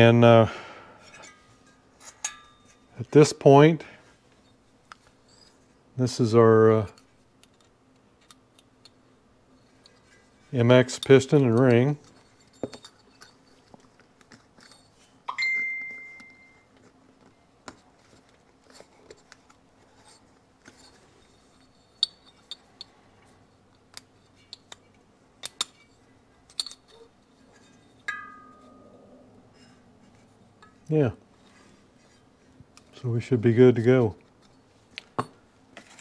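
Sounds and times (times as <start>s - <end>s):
short ringing pings: 15.3s - 16.7s, 28.1s - 29.0s.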